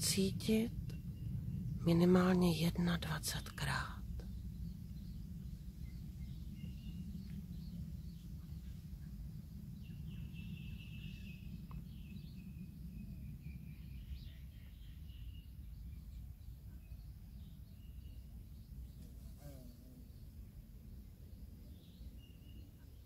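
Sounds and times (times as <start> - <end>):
steady low rumble: 0.0 - 19.0, 20.0 - 23.0
birds chirping: 0.0 - 23.0.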